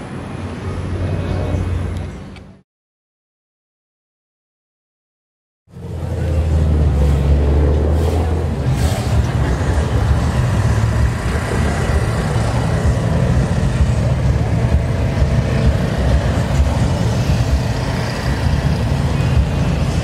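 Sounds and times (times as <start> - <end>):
car engines idling: 5.7 - 20.0.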